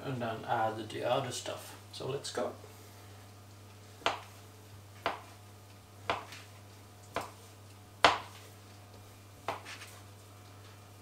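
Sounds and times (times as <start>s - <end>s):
knife chopping on cutting board: 4.0s - 4.4s, 5.0s - 5.4s, 6.1s - 6.5s, 7.1s - 7.4s, 8.0s - 8.4s, 9.4s - 10.0s.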